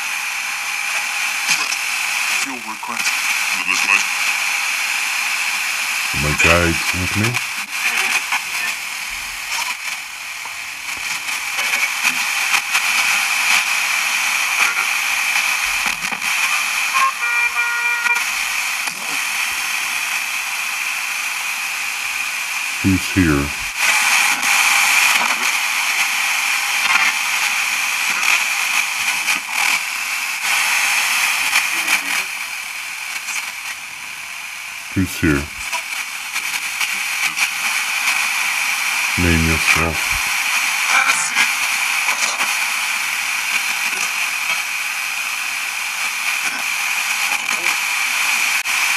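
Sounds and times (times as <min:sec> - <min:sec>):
radio static hiss: 0:00.0 - 0:48.9
radio crackles: 0:01.4 - 0:04.3, 0:06.2 - 0:08.8, 0:09.4 - 0:16.9, 0:22.8 - 0:26.2, 0:35.0 - 0:38.2, 0:39.2 - 0:44.7.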